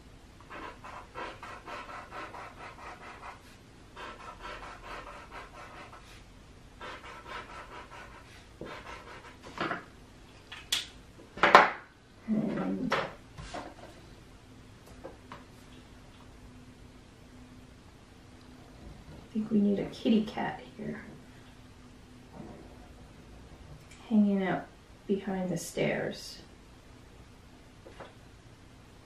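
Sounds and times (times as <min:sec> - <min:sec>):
marker scribbling on paper: 0:00.5 - 0:06.2, 0:06.8 - 0:09.6.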